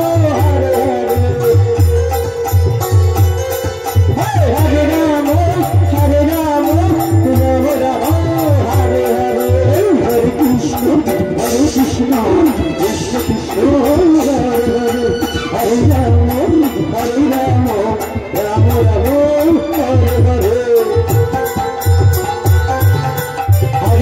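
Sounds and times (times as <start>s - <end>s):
hand drum rhythm: 0.0s - 24.0s.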